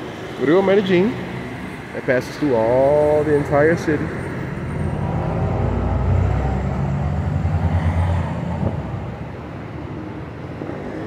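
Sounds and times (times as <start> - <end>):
vehicle engine passing: 3.0 - 11.0.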